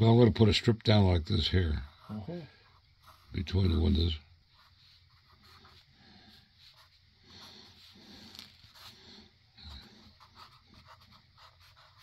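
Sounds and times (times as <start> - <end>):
pencil scratching on paper: 1.8 - 12.0.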